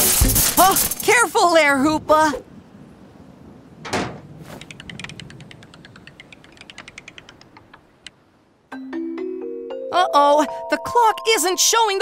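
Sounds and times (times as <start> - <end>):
rapid ratcheting clicks: 4.7 - 7.8.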